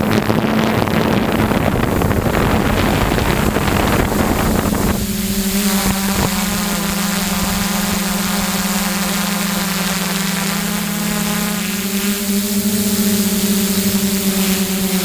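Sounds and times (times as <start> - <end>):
drone motors humming: 0.0 - 15.0
propwash and wind rush: 0.0 - 15.0.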